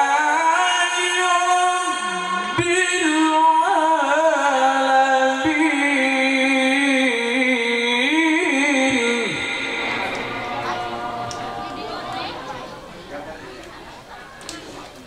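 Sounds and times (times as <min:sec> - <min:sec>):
man reciting melodically into microphone: 0:00.0 - 0:10.1.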